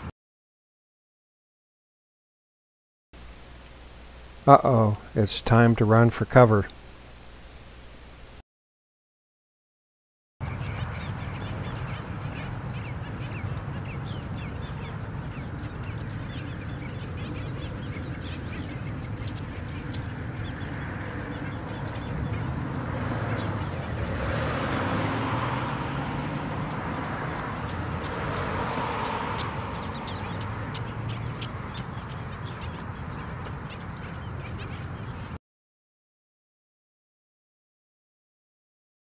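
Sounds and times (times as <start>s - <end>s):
seabird colony calling: 10.4s - 35.4s.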